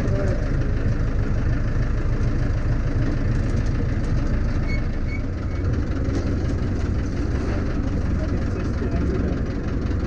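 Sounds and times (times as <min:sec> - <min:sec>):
tractor diesel engine running: 0:00.0 - 0:10.0.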